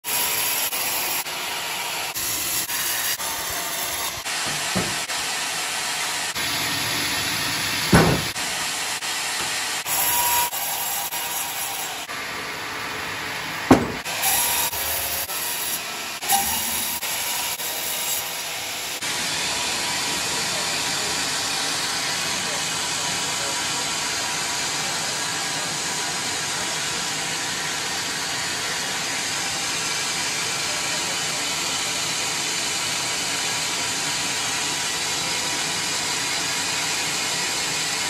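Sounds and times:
sharp knocks: 4.4s - 5.0s, 7.9s - 8.4s, 13.7s - 14.1s.

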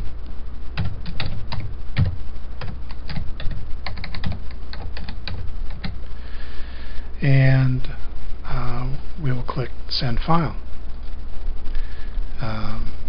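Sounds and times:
keyboard typing clicks: 0.8s - 6.0s.

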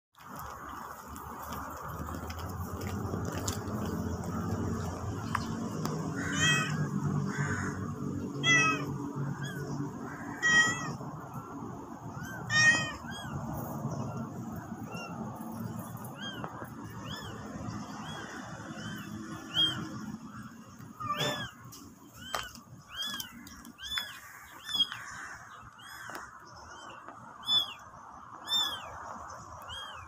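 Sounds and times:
cat meowing: 6.1s - 6.9s, 8.4s - 11.0s, 12.1s - 13.4s, 20.9s - 21.6s.

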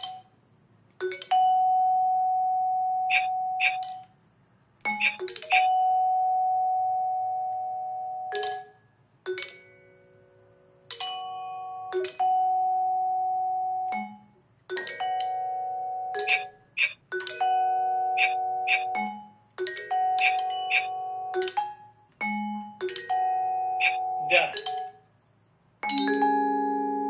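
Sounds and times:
vibraphone chords: 1.0s - 4.0s, 4.9s - 7.4s, 11.0s - 24.9s, 25.8s - 27.0s.

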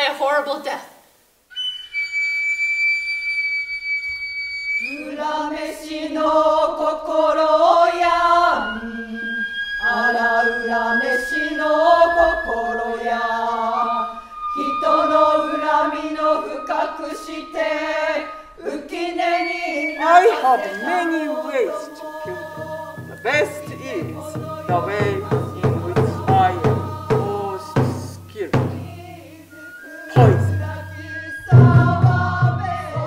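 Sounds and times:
low wavering unison chanting: 4.8s - 33.0s
high held flute note: 8.6s - 32.4s
drum struck: 22.2s - 29.1s, 30.2s - 33.0s.

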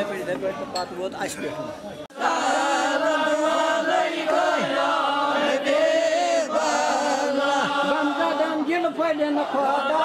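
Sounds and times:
group chanting: 2.1s - 10.0s.

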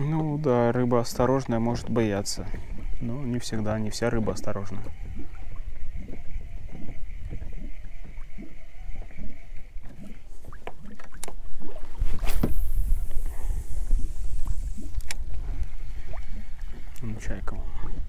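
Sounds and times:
low rumble of wind and water: 0.0s - 18.0s
fishing reel winding whine: 1.0s - 10.2s
fishing line swishing out: 11.8s - 16.2s
small clicks: 14.9s - 15.7s.

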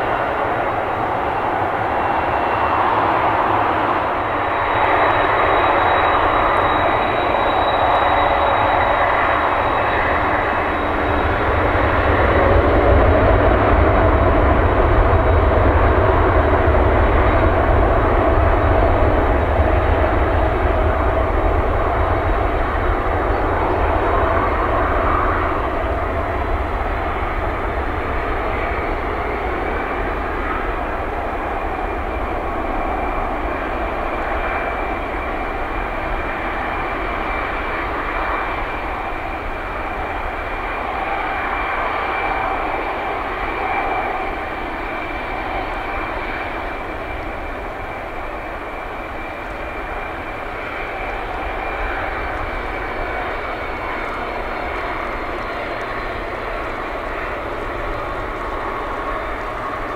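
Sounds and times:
jet engines roaring at takeoff: 0.0s - 59.9s.

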